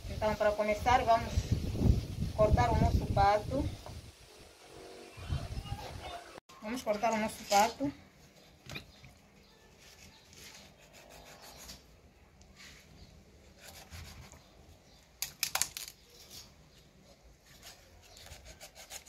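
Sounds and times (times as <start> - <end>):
knife scraping through meat: 10.4 - 11.9, 17.5 - 19.0.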